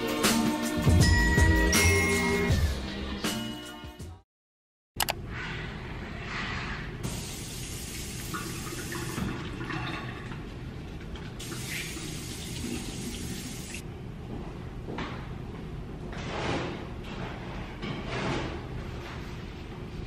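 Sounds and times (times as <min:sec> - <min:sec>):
faucet water running into sink: 0:07.2 - 0:10.4, 0:11.4 - 0:13.8.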